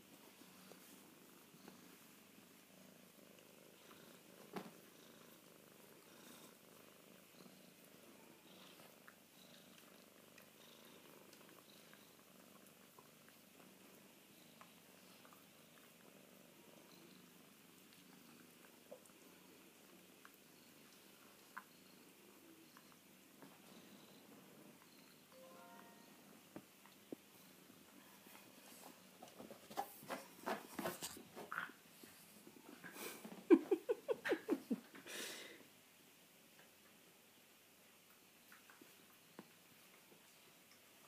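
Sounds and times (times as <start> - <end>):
kitten purring: 0.0 - 25.2.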